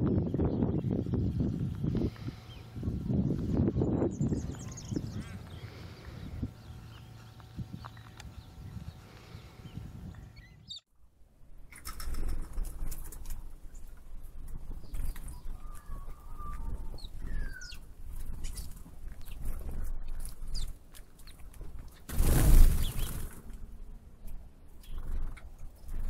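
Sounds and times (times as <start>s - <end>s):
wind rumble on microphone: 0.0s - 10.8s, 12.1s - 20.7s
bird chirps: 3.8s - 10.9s, 14.8s - 21.4s.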